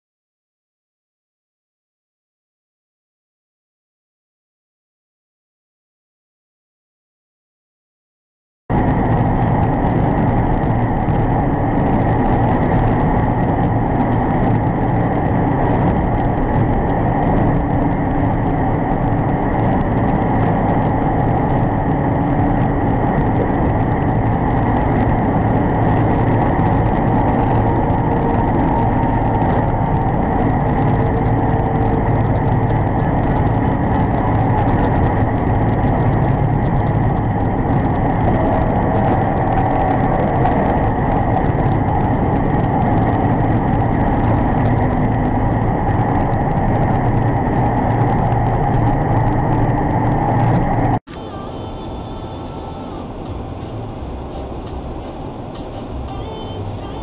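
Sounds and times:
truck engine drone and road noise: 0:08.7 - 0:57.0.

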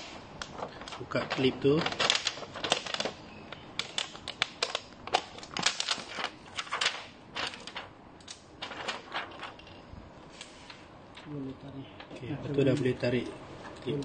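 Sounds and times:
plastic sheet crackling: 0:00.0 - 0:10.8.

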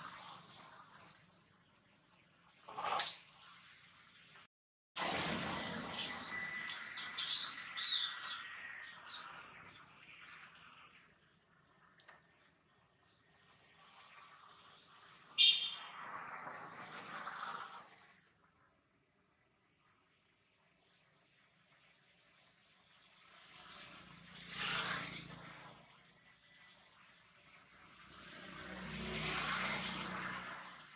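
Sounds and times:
passing motor vehicle: 0:05.0 - 0:10.8, 0:13.8 - 0:18.2, 0:23.1 - 0:26.1, 0:26.7 - 0:30.9
high insect chirring: 0:05.2 - 0:30.9
monkey squealing: 0:05.9 - 0:09.5.

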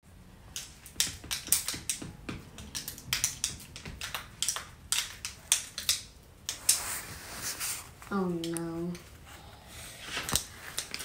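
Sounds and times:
pencils clacking together: 0:00.5 - 0:07.0, 0:08.1 - 0:09.1, 0:10.0 - 0:11.0.

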